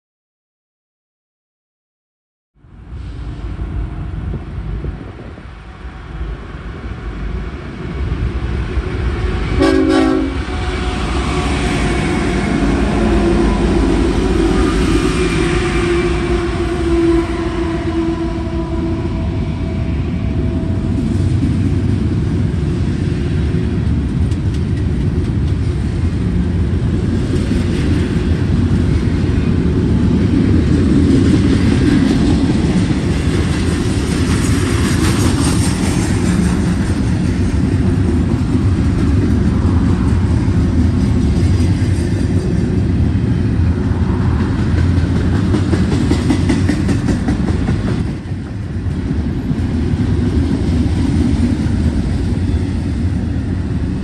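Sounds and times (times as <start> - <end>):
diesel locomotives rumbling: 2.6 - 54.0
train wheels on rails: 2.9 - 54.0
train horn: 9.2 - 21.0.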